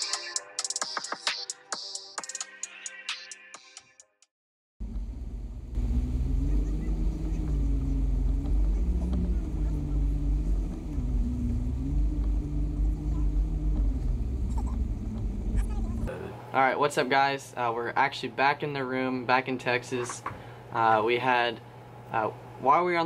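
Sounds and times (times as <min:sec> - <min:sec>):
outboard motors running: 0:04.8 - 0:16.5.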